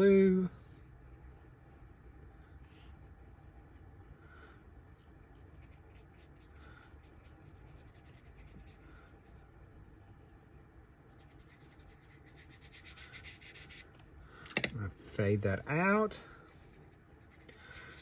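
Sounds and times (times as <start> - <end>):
brush scratching on paper: 4.9 - 14.0, 16.2 - 18.0.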